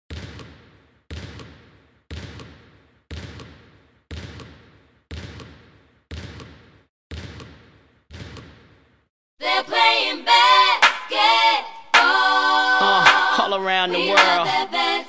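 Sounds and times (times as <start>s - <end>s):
basketball bouncing on hard court: 0.1s - 8.8s.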